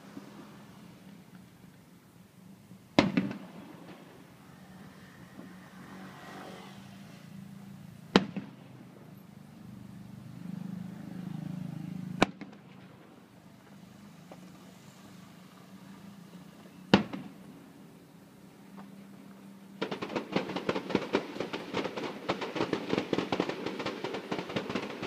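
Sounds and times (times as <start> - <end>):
firework shells bursting: 3.0 - 4.2, 19.8 - 25.0.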